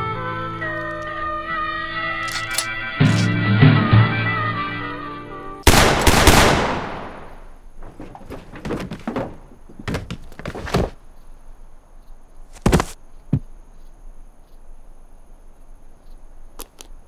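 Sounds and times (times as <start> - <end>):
knocks and thuds: 7.2 - 11.0, 12.6 - 13.5.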